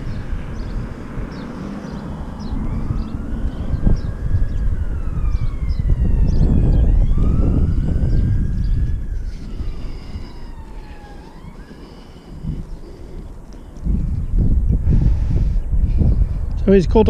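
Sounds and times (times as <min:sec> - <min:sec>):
police siren wailing: 0:00.0 - 0:13.4
wind buffeting microphone: 0:00.0 - 0:17.0.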